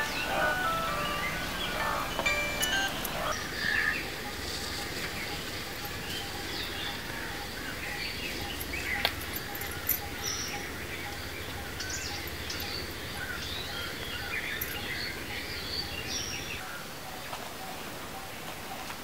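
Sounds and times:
faint repeating peep: 0:00.0 - 0:03.3
birds chirping: 0:00.0 - 0:18.8.

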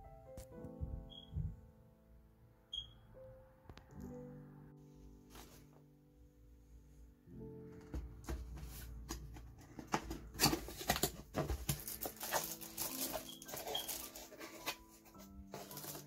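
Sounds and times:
soft background music: 0:00.0 - 0:16.0
cardboard rustling: 0:07.8 - 0:16.0
plastic bag crinkling: 0:10.1 - 0:16.0.

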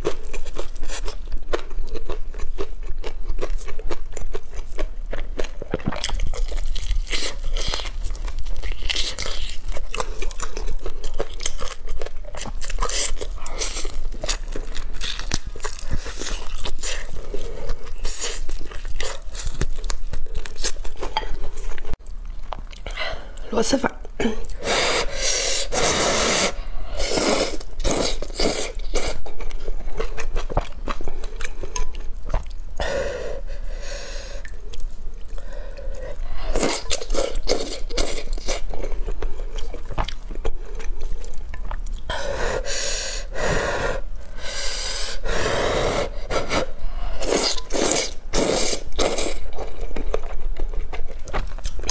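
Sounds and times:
person chewing: 0:00.0 - 0:23.4, 0:24.4 - 0:43.4, 0:44.0 - 0:51.9
person slurping noodles: 0:24.6 - 0:29.2, 0:42.1 - 0:49.4.

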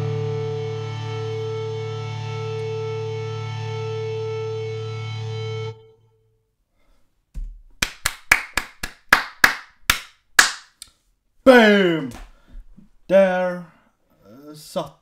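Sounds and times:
distorted electric guitar chord: 0:00.0 - 0:06.0
handclaps: 0:07.8 - 0:10.8.

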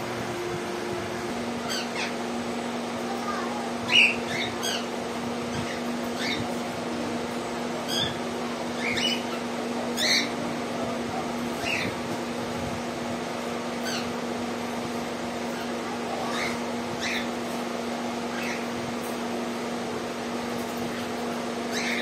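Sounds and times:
steady low hum: 0:00.0 - 0:22.0
parakeet calls: 0:01.6 - 0:02.3, 0:03.8 - 0:06.6, 0:07.8 - 0:10.4, 0:11.6 - 0:12.0, 0:13.8 - 0:14.2, 0:15.5 - 0:17.4, 0:18.3 - 0:18.8, 0:21.7 - 0:22.0.

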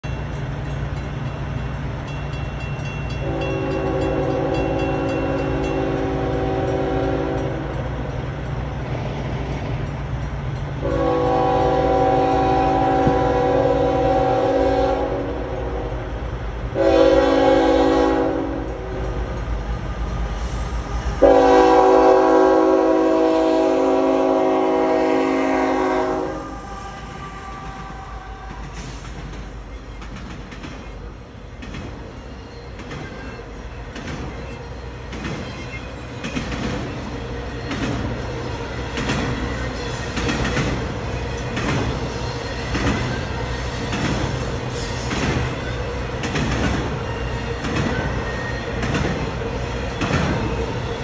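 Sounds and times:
crossing warning bell dinging: 0:00.0 - 0:08.8, 0:09.7 - 0:15.1
train rumbling: 0:00.0 - 0:51.0
locomotive air horn: 0:03.2 - 0:07.8, 0:10.8 - 0:16.1, 0:16.8 - 0:19.1, 0:21.2 - 0:28.6.

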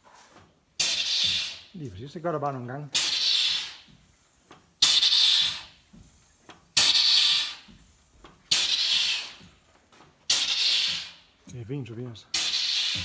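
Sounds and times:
compressed air hissing: 0:00.8 - 0:01.8, 0:02.9 - 0:04.0, 0:04.8 - 0:05.9, 0:06.7 - 0:09.5, 0:10.3 - 0:11.4, 0:12.3 - 0:13.0.

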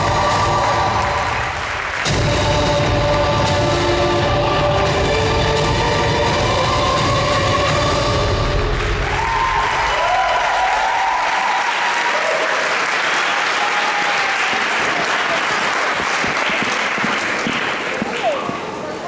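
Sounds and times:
audience applauding: 0:00.0 - 0:02.2, 0:08.6 - 0:19.0
dance music: 0:00.0 - 0:09.8
shouted cheers: 0:09.0 - 0:16.0.

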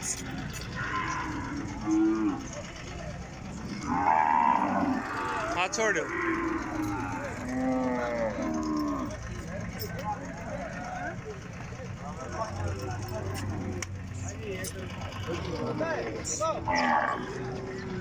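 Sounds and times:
cattle mooing: 0:00.7 - 0:02.7, 0:03.7 - 0:09.3, 0:16.6 - 0:18.0.

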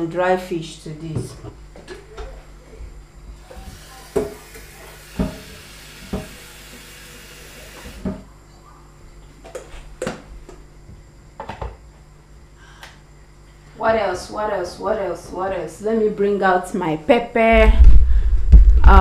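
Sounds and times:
tap water running into kettle: 0:03.6 - 0:08.2.

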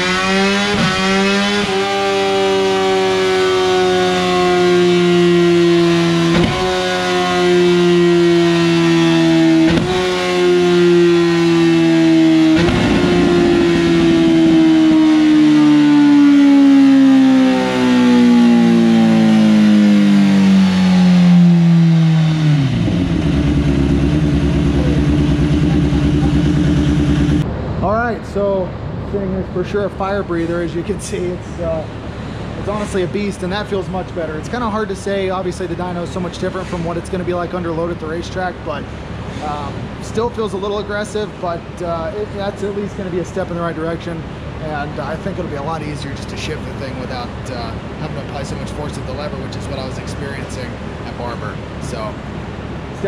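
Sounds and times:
gear changes: 0:00.0 - 0:27.5
motorcycle engine revving high: 0:00.0 - 0:27.5.

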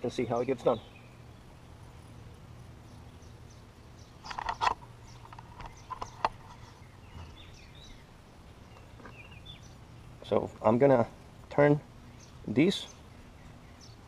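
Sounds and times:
faint bird chirps: 0:00.0 - 0:10.5
low steady hum: 0:00.0 - 0:14.0.

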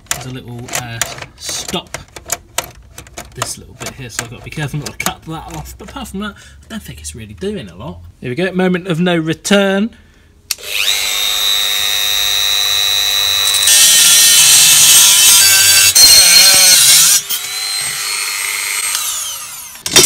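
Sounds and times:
rotary tool whining: 0:10.5 - 0:20.0
cut-off wheel grinding sheet metal: 0:13.2 - 0:20.0.

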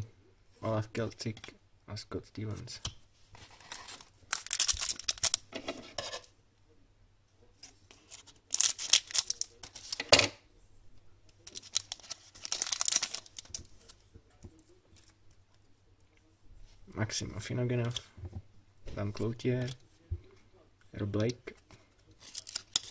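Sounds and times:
foil wrapper tearing and crinkling: 0:03.6 - 0:05.5, 0:08.5 - 0:10.0, 0:11.5 - 0:13.6, 0:22.2 - 0:22.9.

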